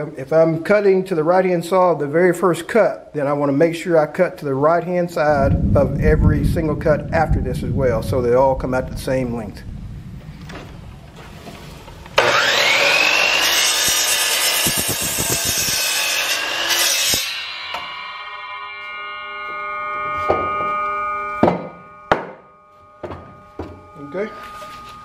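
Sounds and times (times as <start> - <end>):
miter saw cutting wood: 12.2 - 22.4
saw blade spinning whine: 12.2 - 25.0
sharp knocks: 20.2 - 24.0.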